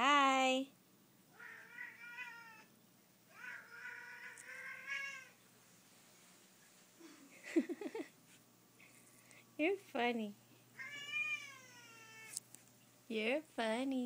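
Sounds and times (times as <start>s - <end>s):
cat meowing: 1.4s - 2.7s, 3.3s - 5.4s, 10.8s - 12.4s.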